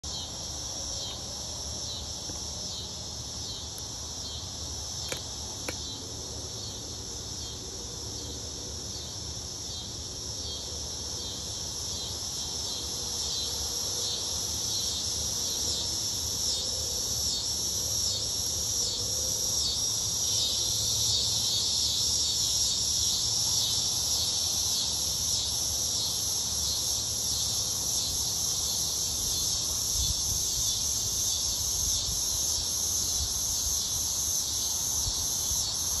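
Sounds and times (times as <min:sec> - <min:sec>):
cicadas buzzing: 0:00.0 - 0:36.0.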